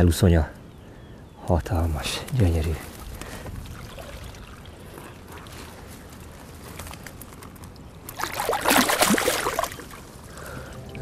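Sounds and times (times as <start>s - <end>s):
lapping water: 3.0s - 5.9s, 8.1s - 10.0s
water splashing: 3.6s - 5.8s, 8.1s - 10.1s.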